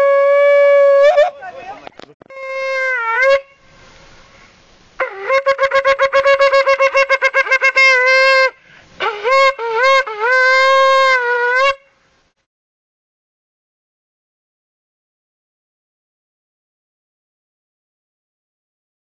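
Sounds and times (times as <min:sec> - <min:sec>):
shofar blasts: 0:00.0 - 0:01.4, 0:02.3 - 0:03.7, 0:05.0 - 0:11.9
hiss: 0:03.6 - 0:05.0.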